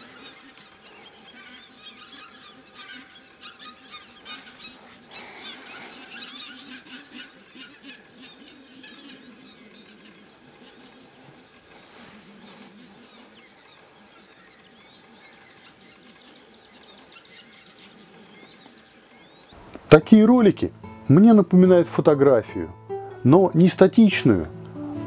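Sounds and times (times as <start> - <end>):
geese calling: 0.0 - 19.4.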